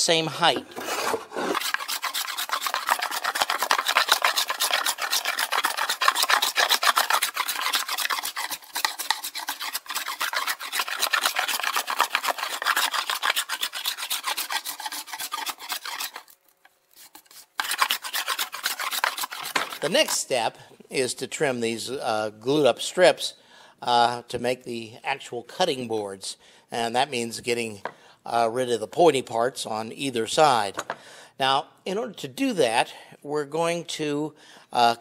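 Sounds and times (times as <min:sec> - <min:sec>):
hand plane rasping on wood: 0:00.7 - 0:16.4, 0:17.0 - 0:20.2.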